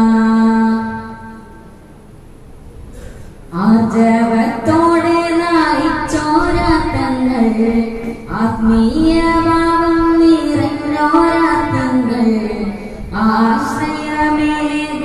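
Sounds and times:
boy singing into microphone: 0.0 - 1.6, 3.0 - 15.0
singer breath: 2.9 - 3.5.

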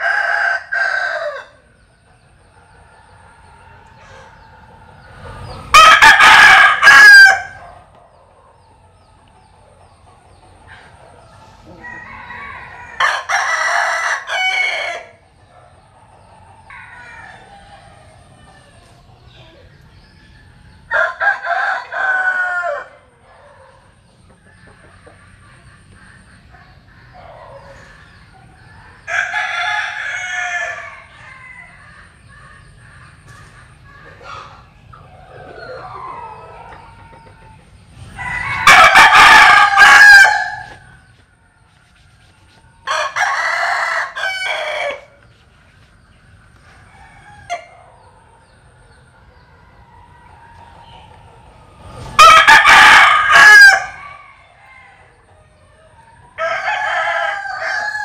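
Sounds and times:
rooster crowing: 0.0 - 1.8, 5.7 - 7.8, 11.6 - 15.2, 16.6 - 18.9, 20.2 - 23.9, 28.9 - 32.7, 33.9 - 41.1, 42.8 - 45.3, 46.8 - 48.2, 51.9 - 58.0.

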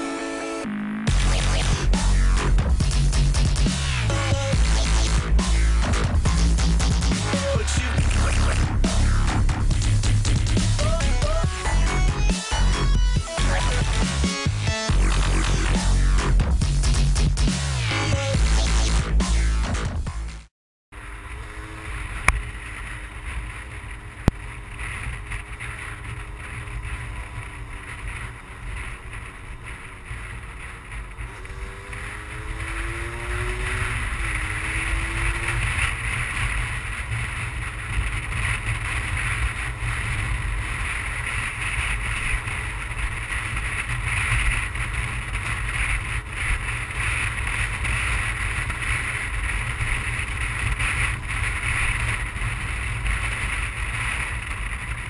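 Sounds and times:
two-stroke motorbike engine: 21.0 - 55.0
wind rushing over microphone: 21.0 - 55.0.

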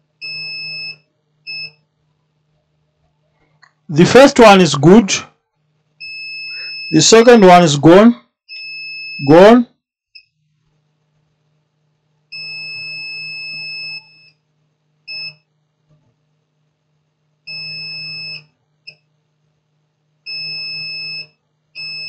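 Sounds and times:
multimeter continuity beeps: 0.2 - 1.8, 6.0 - 7.6, 8.5 - 9.6, 12.3 - 14.4, 15.1 - 15.5, 17.5 - 19.1, 20.3 - 22.0.

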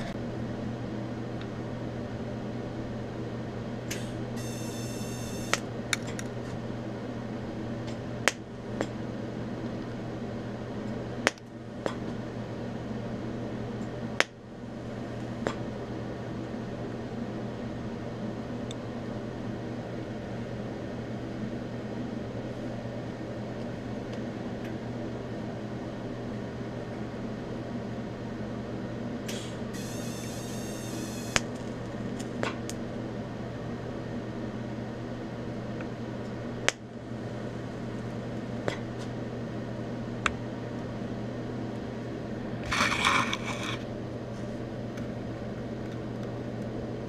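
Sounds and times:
high-pitched arc buzz: 4.4 - 5.6, 29.7 - 31.5
welder humming: 4.4 - 5.6, 29.7 - 31.6.

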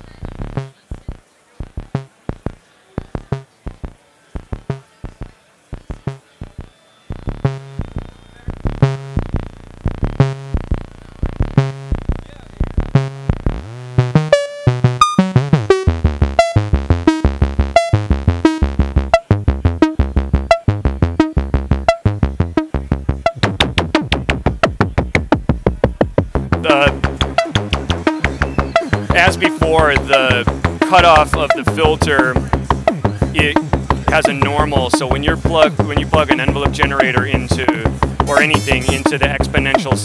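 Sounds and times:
synthesizer plucky notes: 13.1 - 40.0.

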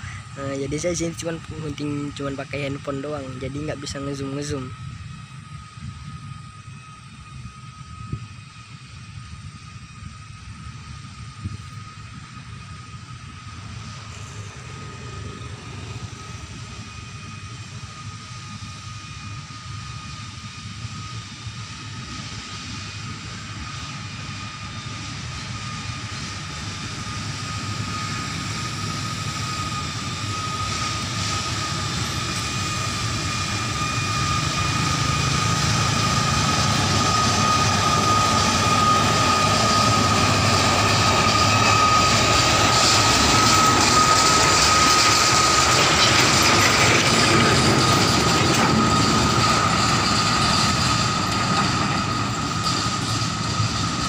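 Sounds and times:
steady high whine: 0.0 - 54.0
diesel locomotive engine running: 11.4 - 18.6, 21.7 - 54.0
train wheels on rails: 34.2 - 54.0.

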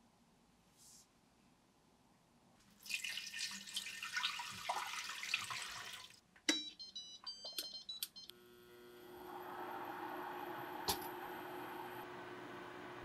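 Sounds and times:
water pouring into pot: 2.8 - 6.2
cooktop controls clicking and beeping: 6.5 - 8.4
electrical hum: 7.8 - 13.0.

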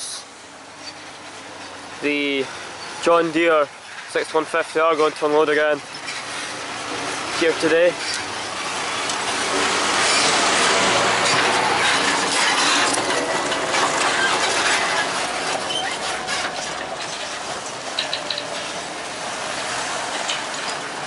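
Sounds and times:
tractor diesel engine passing: 0.0 - 21.0.

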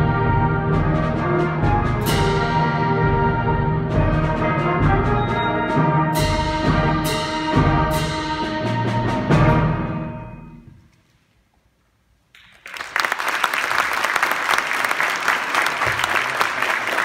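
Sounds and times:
audience applause: 12.4 - 17.0.

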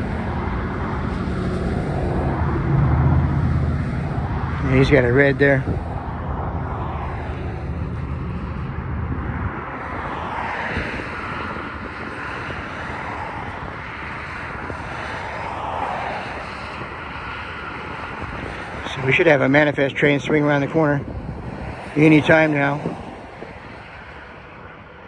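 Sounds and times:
diesel locomotive engine rumble: 0.0 - 13.8.

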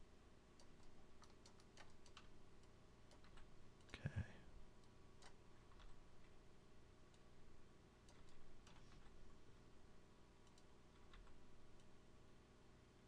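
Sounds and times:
computer mouse clicks: 0.6 - 4.0, 4.8 - 6.4, 8.0 - 9.2, 10.4 - 12.0.

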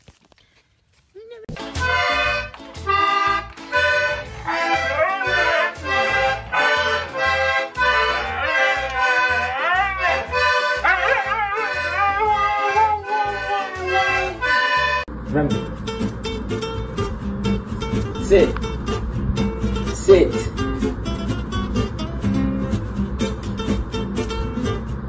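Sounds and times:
toy accordion chords: 1.5 - 15.2
dog howling: 4.4 - 14.5.

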